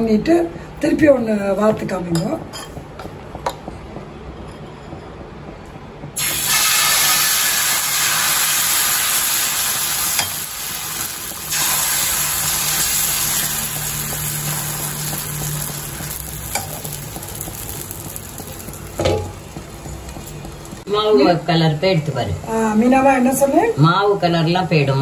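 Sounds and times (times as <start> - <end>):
batter sizzling on griddle: 6.2 - 21.3.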